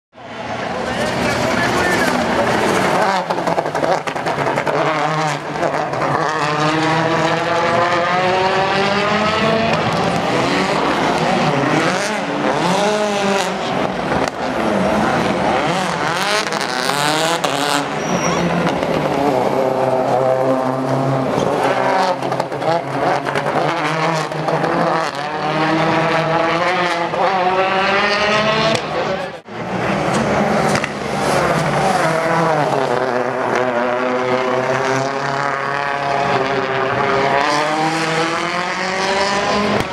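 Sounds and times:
rally car engines revving: 0.2s - 39.9s.

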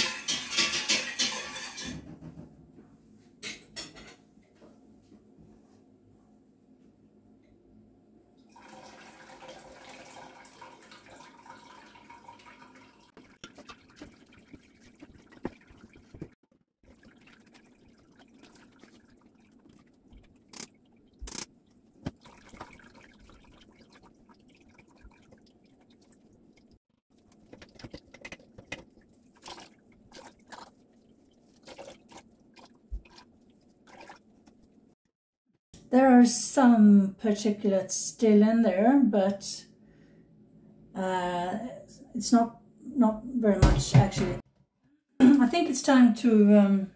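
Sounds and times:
liquid pouring through a sieve: 8.5s - 34.8s
dripping: 8.6s - 34.9s.

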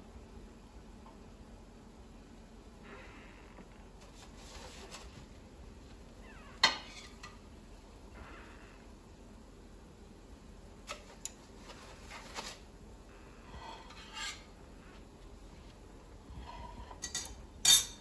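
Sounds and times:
utensil scraping a foil tray: 13.5s - 14.5s.

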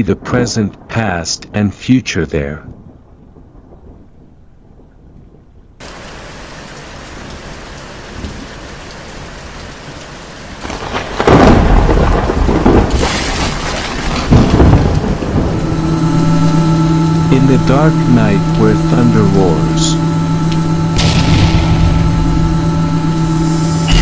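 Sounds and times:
thunder rolling: 2.5s - 8.7s, 10.6s - 24.0s
heavy rain: 5.7s - 24.0s.

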